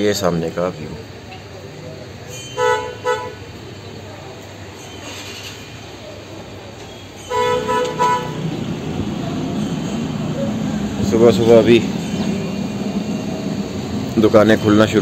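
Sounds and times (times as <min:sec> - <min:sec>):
low hum of traffic: 0:00.0 - 0:15.0
vehicle horn tooting: 0:02.6 - 0:03.5, 0:07.2 - 0:08.7.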